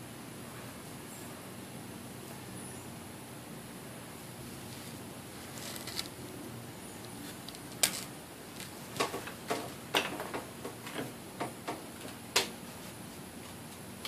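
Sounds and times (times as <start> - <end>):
sharp clicks and light knocks: 7.0 - 12.6.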